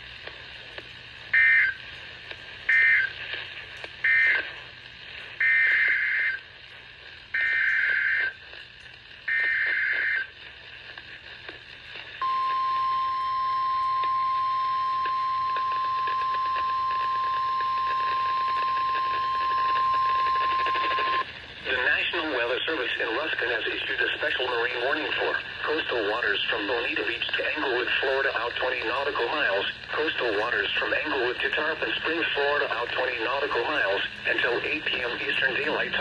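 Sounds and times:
digital data tone bursts: 2.7s - 3.2s, 4.0s - 4.5s, 5.4s - 6.5s, 7.3s - 8.4s, 9.3s - 10.3s, 12.2s - 21.3s
warning alarm tone: 12.2s - 21.2s.

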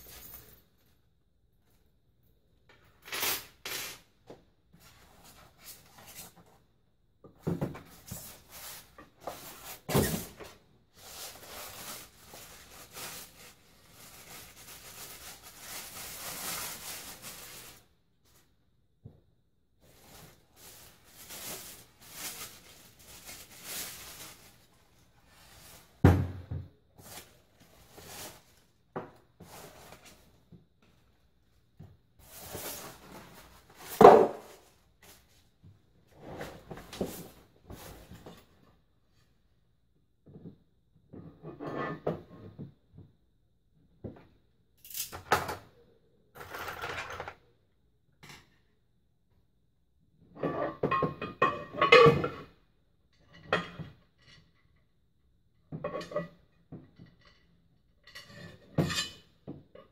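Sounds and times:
plastic bag rustling: 8.2s - 17.9s, 19.8s - 26.0s, 27.0s - 28.7s.

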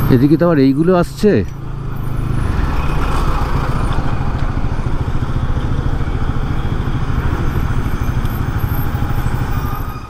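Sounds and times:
motorcycle engine running steadily: 2.9s - 9.5s.

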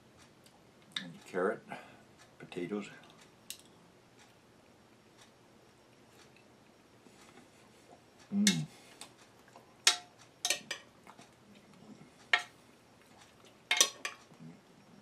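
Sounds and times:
metal spoon clinking on dish: 9.9s - 10.9s, 13.7s - 14.2s.

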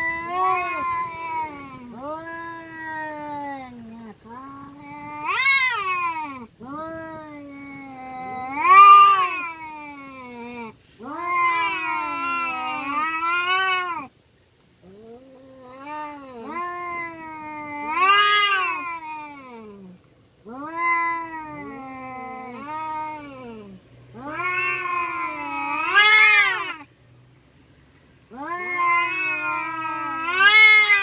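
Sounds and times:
cats yowling: 0.0s - 14.1s, 14.8s - 26.9s, 28.3s - 31.0s.

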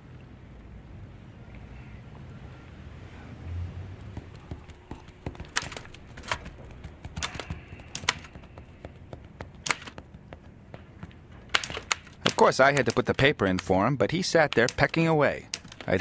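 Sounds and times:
typewriter keystrokes: 7.2s - 8.4s, 11.5s - 13.7s.

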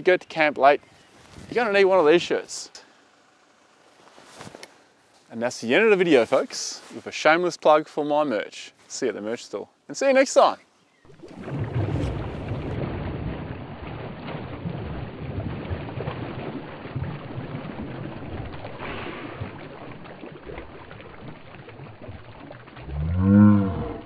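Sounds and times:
muddy water splashing: 11.0s - 24.0s.

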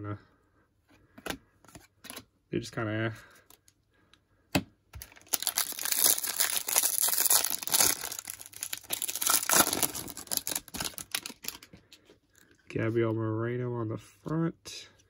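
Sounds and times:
foil wrapper tearing and crinkling: 5.0s - 11.7s.

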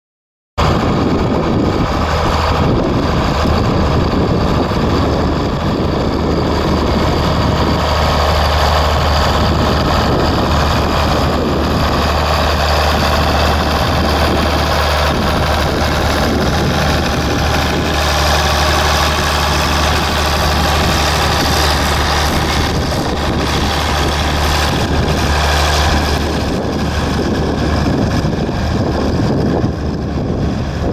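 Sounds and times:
tractor engine droning: 0.6s - 30.9s.

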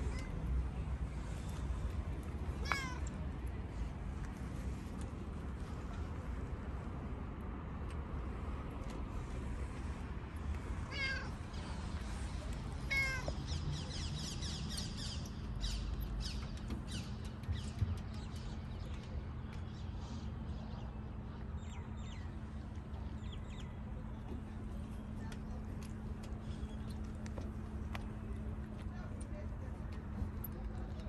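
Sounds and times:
cat meowing: 2.6s - 3.1s, 10.9s - 11.4s, 12.9s - 13.4s.

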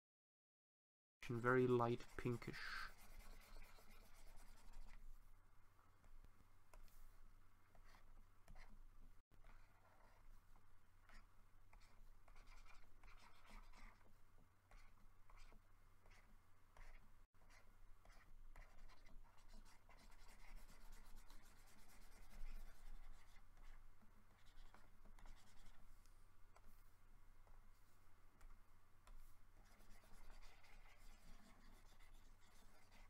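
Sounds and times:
stylus scratching on drawing tablet: 1.2s - 5.2s, 7.7s - 28.0s, 29.0s - 33.0s.

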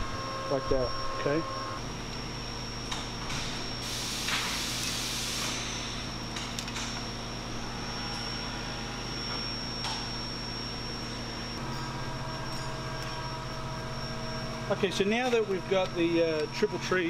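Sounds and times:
high whine: 0.0s - 17.0s
shop background hum: 0.0s - 17.0s
hiss: 3.8s - 5.8s.

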